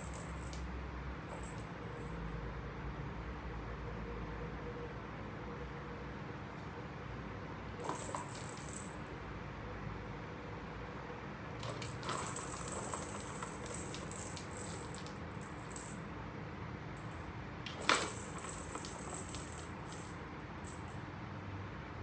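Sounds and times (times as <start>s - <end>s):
plastic balls rattling in track toy: 7.8s - 9.0s, 11.6s - 16.0s, 17.0s - 20.9s.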